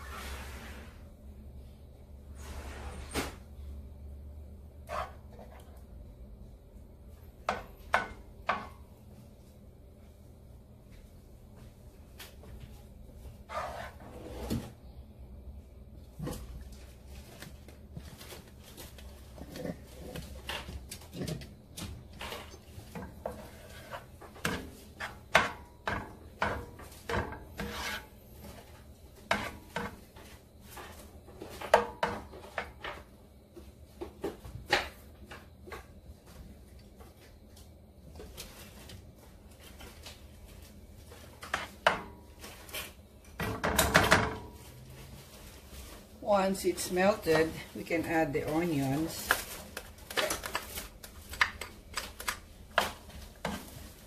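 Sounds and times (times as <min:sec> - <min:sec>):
low steady hum: 0:00.0 - 0:54.0
spoon scraping frying pan: 0:04.9 - 0:05.6, 0:13.5 - 0:14.3, 0:26.4 - 0:28.7, 0:29.3 - 0:30.0.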